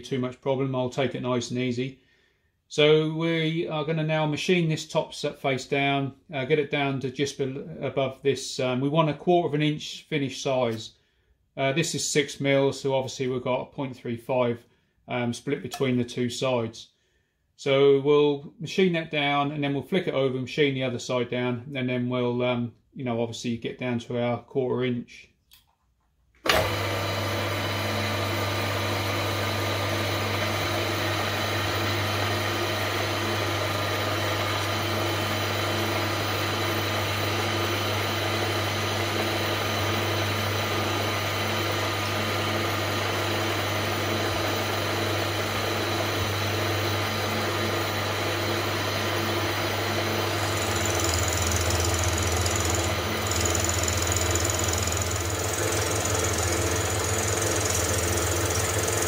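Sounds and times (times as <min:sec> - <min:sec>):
milling machine motor hum: 0:26.5 - 0:59.0.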